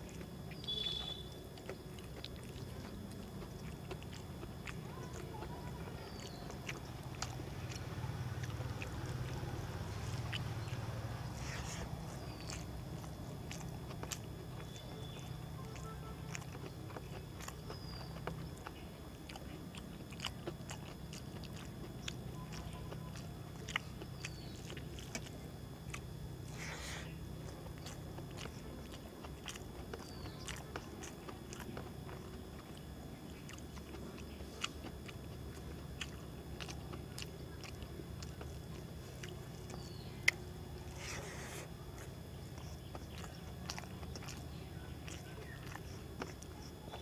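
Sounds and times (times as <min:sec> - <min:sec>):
low hum: 0:00.0 - 0:47.0
man chewing: 0:00.0 - 0:47.0.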